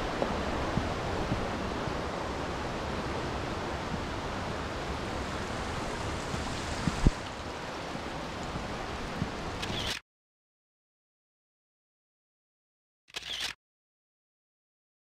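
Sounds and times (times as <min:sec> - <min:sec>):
rushing stream and waterfalls: 0:00.0 - 0:10.0.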